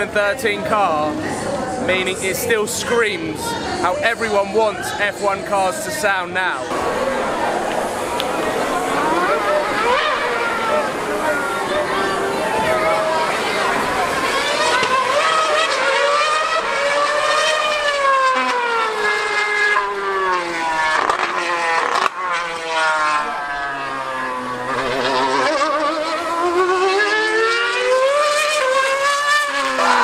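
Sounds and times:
racing car engine screaming: 6.6 - 30.0.

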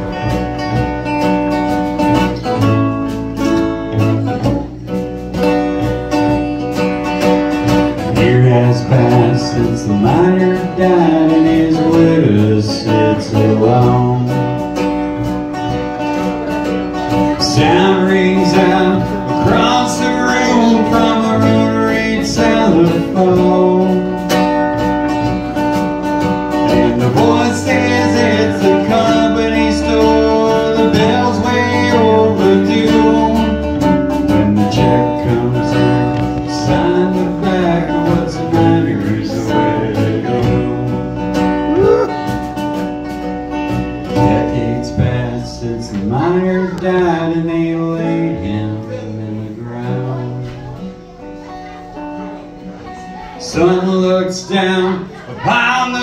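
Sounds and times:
plucked double bass: 0.0 - 52.9
acoustic guitar: 0.0 - 56.0
man singing: 7.8 - 15.0, 17.0 - 25.4, 26.4 - 42.5, 44.0 - 51.2, 53.2 - 56.0.

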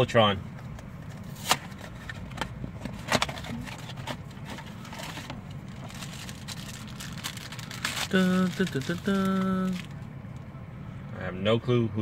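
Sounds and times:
steady low hum: 0.0 - 12.0
foil pouch tearing and crinkling: 5.7 - 9.9.

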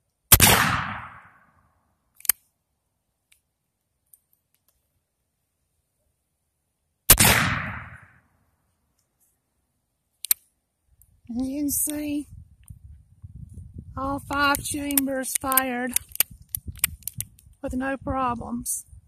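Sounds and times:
revolver gunshots: 0.3 - 1.4, 7.1 - 8.2.

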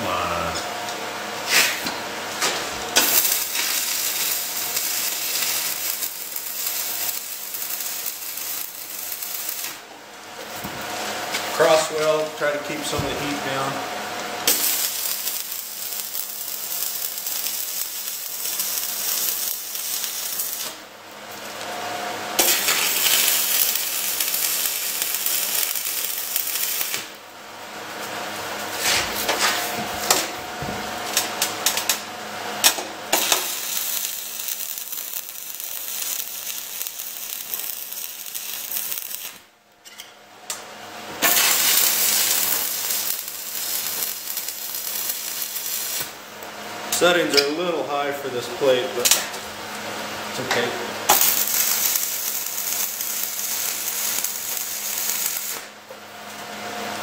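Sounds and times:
person speaking: 0.0 - 0.7, 11.5 - 13.8
welding arc crackling hiss: 1.3 - 30.4, 31.0 - 39.6, 40.5 - 57.0.

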